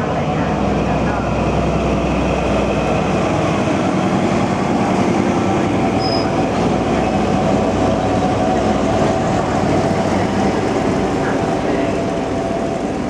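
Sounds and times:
diesel locomotive engine drone: 0.0s - 13.0s
train wheels rumbling on rails: 0.0s - 13.0s
short high squeal: 6.0s - 6.4s.

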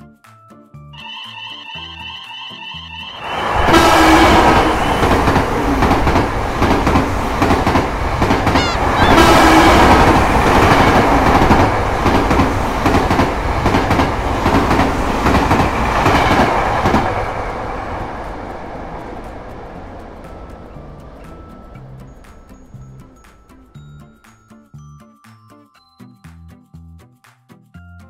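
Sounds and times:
passenger train rumbling: 1.0s - 24.0s
wheels clattering over rails: 3.2s - 23.5s.

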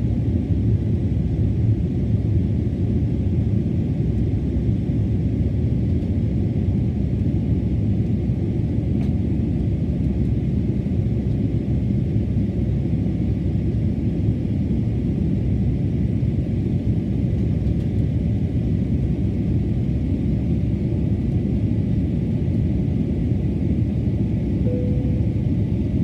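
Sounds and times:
jet engines rumbling: 15.0s - 26.0s.

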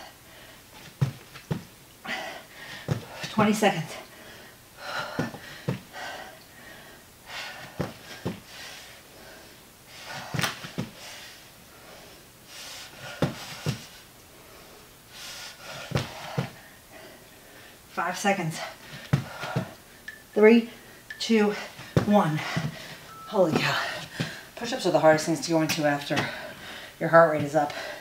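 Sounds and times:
feet thumping on floor: 0.8s - 1.8s, 2.9s - 3.4s, 5.1s - 5.9s, 7.6s - 8.5s, 10.1s - 11.0s, 13.2s - 13.9s, 15.9s - 16.6s, 18.9s - 19.8s, 21.8s - 24.4s
person breathing hard: 2.0s - 3.3s, 4.0s - 17.9s, 18.6s - 20.0s, 20.8s - 24.6s, 26.2s - 27.0s, 27.7s - 28.0s.

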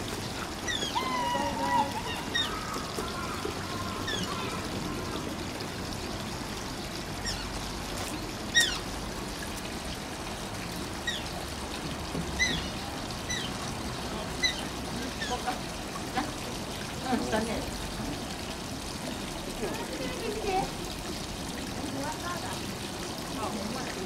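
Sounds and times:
trickling water: 0.0s - 24.0s
otter squeaking chirps: 0.7s - 2.7s, 8.5s - 8.8s.

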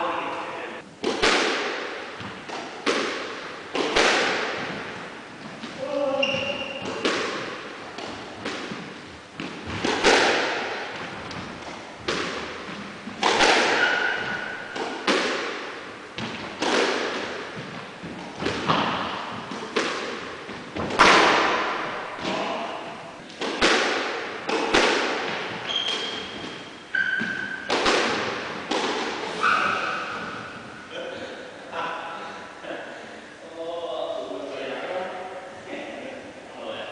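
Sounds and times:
squash ball hitting rackets and walls: 1.0s - 30.8s
shoe squeaks: 6.0s - 7.0s, 25.6s - 27.7s, 29.3s - 30.6s.

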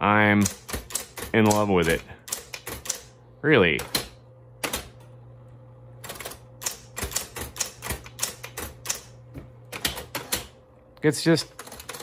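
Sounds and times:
typewriter motor hum: 0.3s - 3.2s, 3.8s - 5.1s, 6.0s - 10.6s, 11.4s - 12.0s
typebars clicking: 0.4s - 3.1s, 6.1s - 9.1s, 11.6s - 12.0s.

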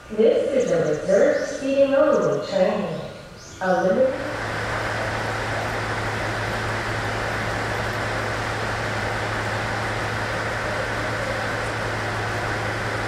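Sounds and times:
train car low hum: 0.0s - 13.0s
train rushing noise: 3.9s - 13.0s.

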